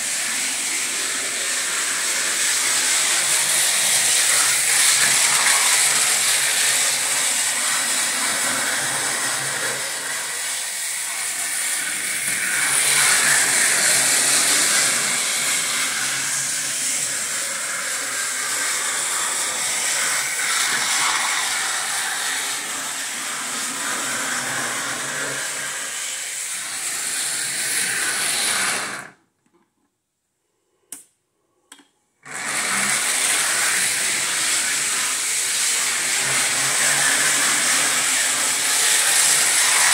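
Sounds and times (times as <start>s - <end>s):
strong hiss: 0.0s - 29.1s.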